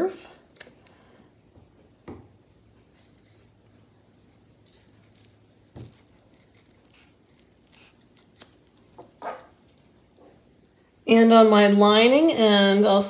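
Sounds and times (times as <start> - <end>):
scissors snipping fabric: 4.7 - 9.6.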